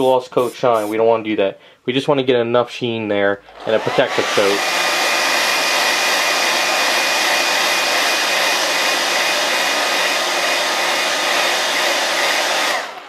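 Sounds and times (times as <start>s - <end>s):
hair dryer blowing: 3.5s - 13.0s.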